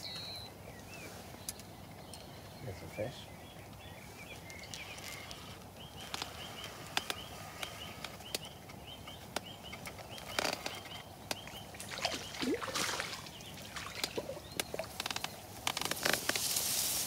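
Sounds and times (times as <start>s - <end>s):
fish splashing at surface: 11.8s - 14.8s.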